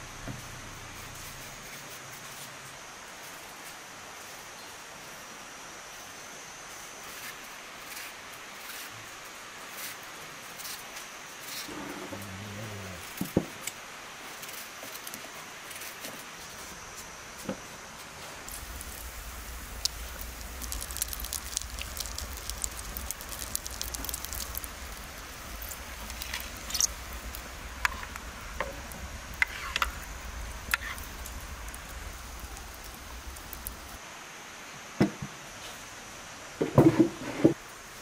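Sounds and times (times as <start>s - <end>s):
wood fire crackling: 11.7s - 16.6s, 18.3s - 34.0s
low steady rumble: 18.5s - 34.0s.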